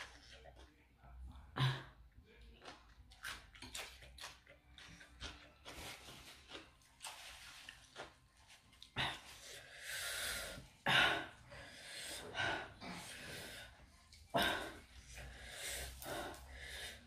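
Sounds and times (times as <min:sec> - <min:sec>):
person chewing and slurping: 0:02.6 - 0:09.8.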